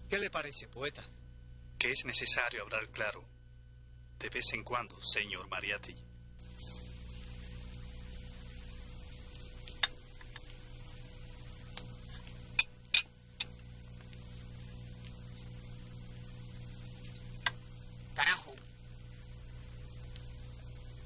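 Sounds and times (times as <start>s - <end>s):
low steady hum: 0.0s - 21.0s
glassware clinking: 12.6s - 13.1s.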